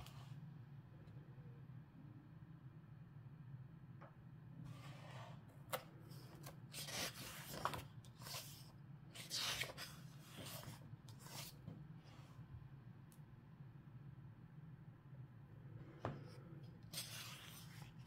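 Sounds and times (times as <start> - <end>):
low steady hum: 0.0 - 18.0
book pages turning: 4.7 - 11.7, 16.8 - 18.0.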